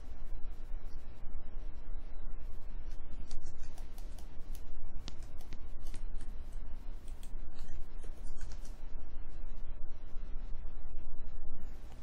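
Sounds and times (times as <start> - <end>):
steady low hum: 0.0 - 12.0
computer mouse clicking: 3.2 - 6.4, 7.0 - 8.8.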